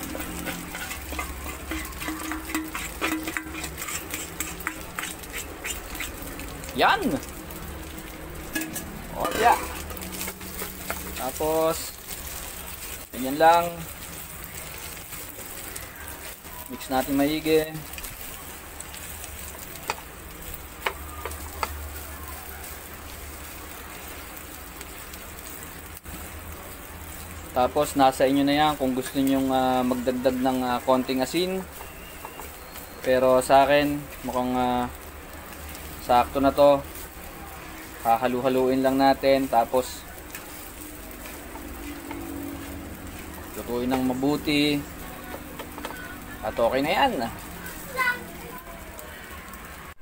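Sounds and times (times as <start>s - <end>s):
utensil scraping metal bowl: 0.0s - 6.2s
faint sizzle: 0.0s - 50.0s
spatula clicking against pan: 0.1s - 6.1s.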